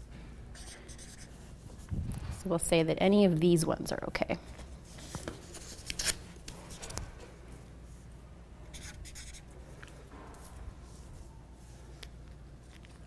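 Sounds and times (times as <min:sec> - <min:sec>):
marker scratching on paper: 0:00.5 - 0:01.4, 0:08.7 - 0:09.5.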